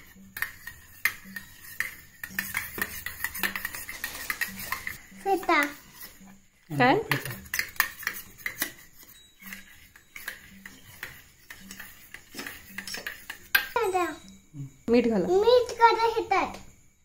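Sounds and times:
spoon clinking against bowl: 0.2 - 6.2, 6.9 - 14.6.

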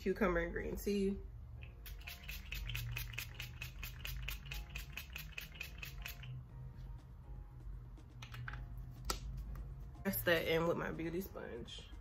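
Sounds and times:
spray bottle hissing: 1.9 - 6.3.

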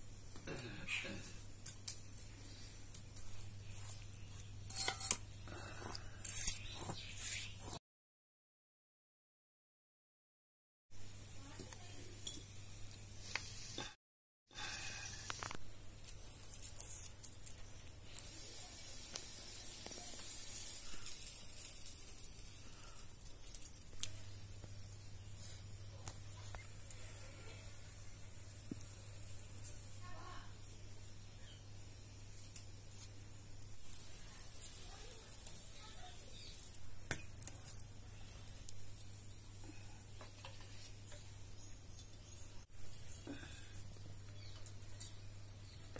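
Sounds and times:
faint steady hiss: 11.0 - 45.9
food sizzling in a frying pan: 18.1 - 23.0.

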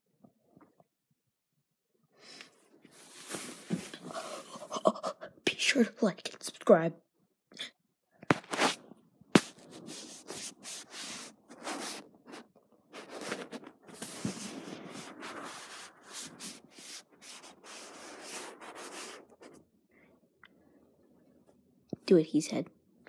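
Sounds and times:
fabric rubbing on microphone: 2.9 - 4.7, 8.3 - 8.8, 9.4 - 19.6.

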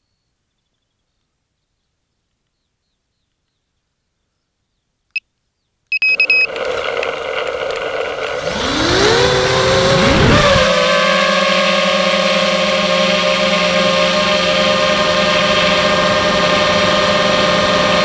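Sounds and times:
short beeps: 5.9 - 6.5
drone motors whining: 6.2 - 18.0.

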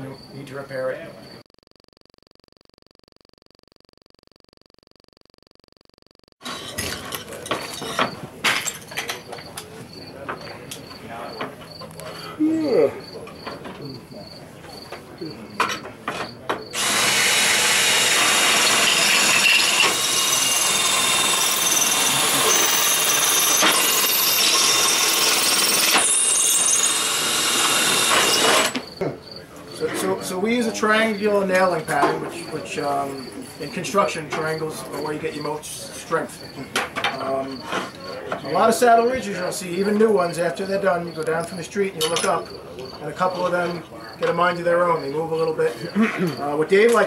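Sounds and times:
crickets chirping: 0.0 - 1.4, 8.9 - 16.7, 28.8 - 46.6
power drill boring through slate: 16.8 - 28.8.

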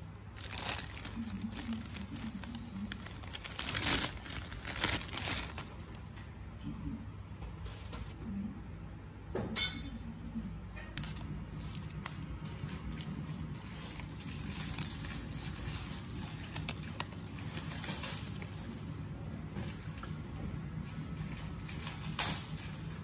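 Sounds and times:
paper rustling: 0.0 - 6.0.

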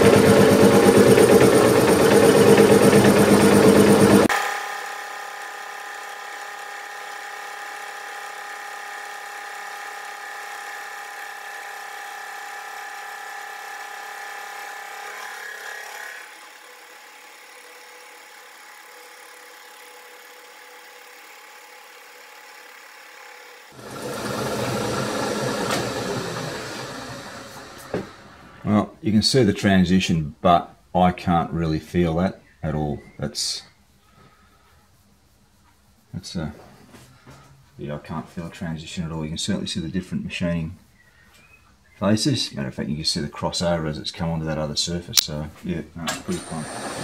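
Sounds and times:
milling machine whining: 0.0 - 16.6, 23.7 - 28.7.

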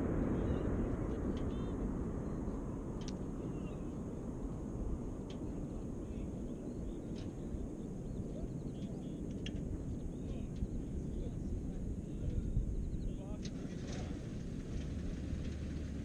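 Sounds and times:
wind rumble on microphone: 0.0 - 16.0
faint bird chirps: 0.2 - 2.6, 3.2 - 4.0, 5.5 - 13.4.

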